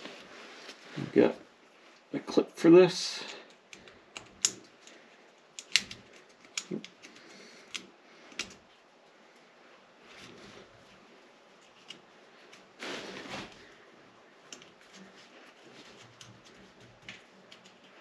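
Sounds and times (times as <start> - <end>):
soft handling rustle: 0.0 - 18.0
spring clip clicking: 3.7 - 8.6.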